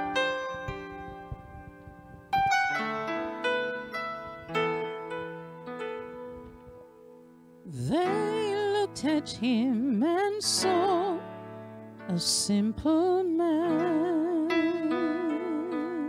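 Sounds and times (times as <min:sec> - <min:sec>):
electric piano chords: 0:00.0 - 0:16.0
woman singing with vibrato: 0:07.7 - 0:11.3, 0:12.1 - 0:16.0.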